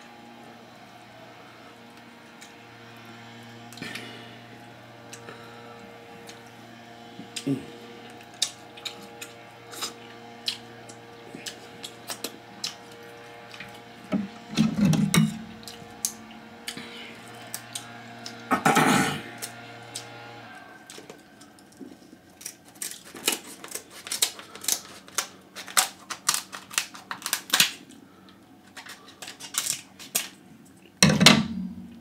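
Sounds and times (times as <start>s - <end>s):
wet chewing: 7.3s - 13.8s, 20.9s - 27.7s
scissors crunching crab leg: 8.3s - 12.9s, 22.3s - 28.0s, 28.7s - 30.4s
crab shell cracking: 20.9s - 28.0s, 28.7s - 30.4s
low hum: 31.2s - 32.0s.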